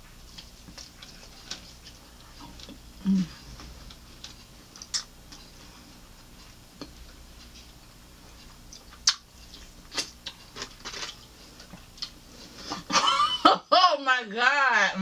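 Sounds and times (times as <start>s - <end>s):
chewing sounds: 0.3s - 12.2s
crunching fried chicken: 8.5s - 12.2s.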